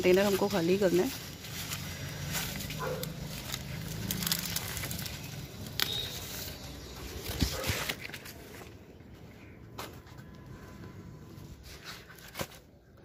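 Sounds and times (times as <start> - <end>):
corn leaves rustling and crackling: 0.0 - 8.8
corn ears snapping: 1.7 - 8.3.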